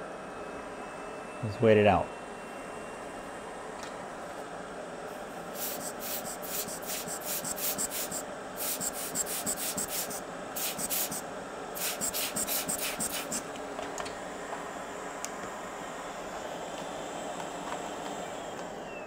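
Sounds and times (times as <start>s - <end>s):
steady hum: 2.6s - 13.6s
foam swab scrubbing circuit board: 5.6s - 11.2s, 11.8s - 13.4s.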